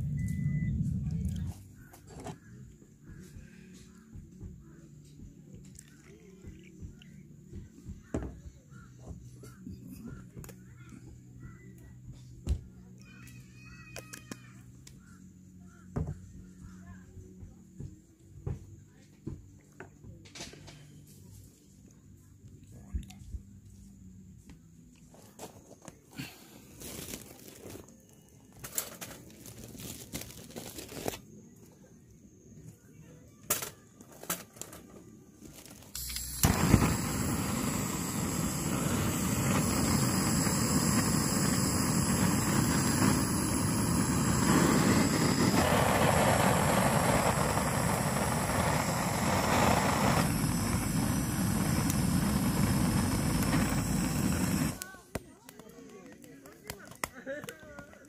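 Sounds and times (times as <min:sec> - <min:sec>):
food sizzling in hot pan: 0:36.0 - 0:54.8.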